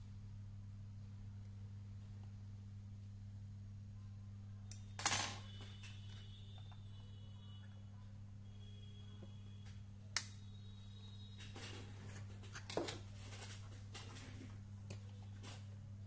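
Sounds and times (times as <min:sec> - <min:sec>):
low electrical hum: 0:00.0 - 0:16.0
circuit board clattering on workbench: 0:05.0 - 0:05.5.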